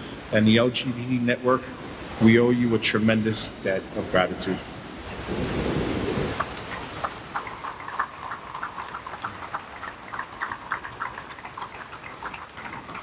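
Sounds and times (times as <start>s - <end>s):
audience applause: 7.0s - 13.0s.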